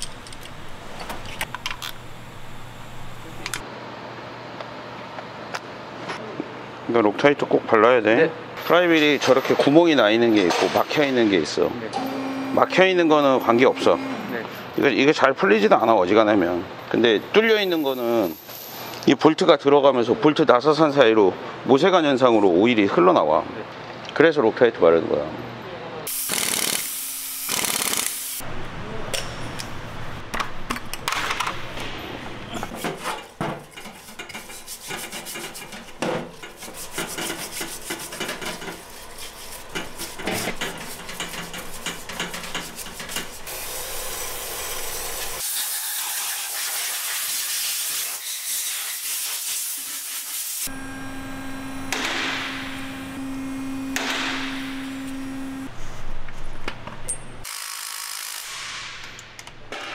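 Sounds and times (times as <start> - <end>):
steady hum: 0.0 - 3.6, 12.0 - 14.5, 50.7 - 56.4
stiff brush scrubbing engine part: 32.7 - 45.4.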